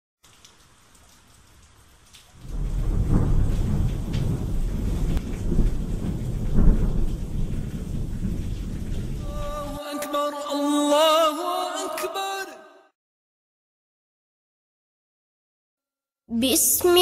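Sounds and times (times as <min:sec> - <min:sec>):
rain: 0:00.2 - 0:10.6
low rolling thunder: 0:02.4 - 0:09.8.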